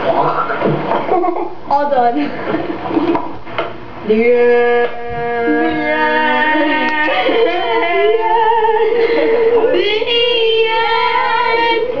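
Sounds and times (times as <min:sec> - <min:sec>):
high voices singing held notes: 0:04.1 - 0:12.0.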